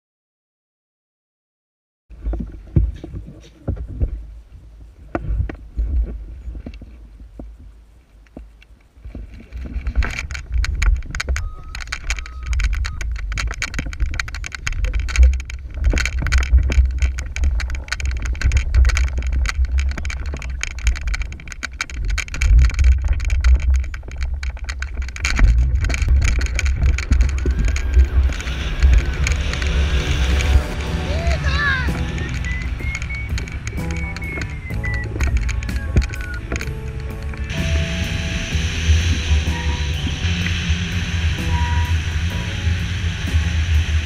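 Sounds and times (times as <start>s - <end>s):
wind rushing over microphone: 9.0s - 44.0s.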